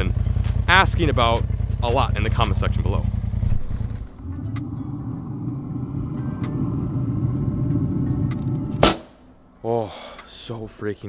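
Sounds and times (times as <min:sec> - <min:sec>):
steady low rumble: 0:00.0 - 0:09.6
sharp loud knock: 0:08.8 - 0:09.2.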